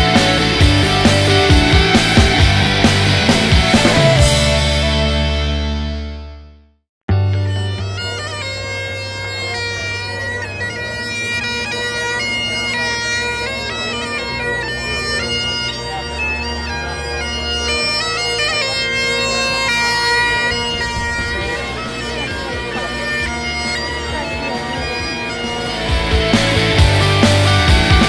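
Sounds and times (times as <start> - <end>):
bagpipes playing: 0.0 - 6.1, 7.1 - 28.0.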